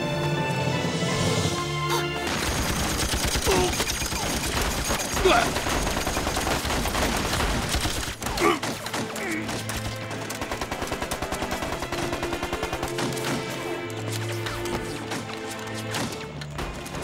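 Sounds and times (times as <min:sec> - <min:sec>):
dramatic film score: 0:00.0 - 0:17.0
automatic gunfire: 0:02.3 - 0:13.6.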